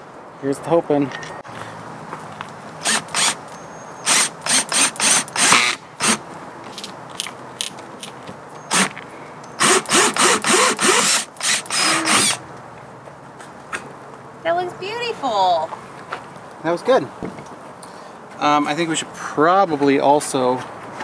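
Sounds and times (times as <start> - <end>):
cordless drill whining in pulses: 4.0 - 6.2, 8.7 - 8.9, 9.6 - 12.4.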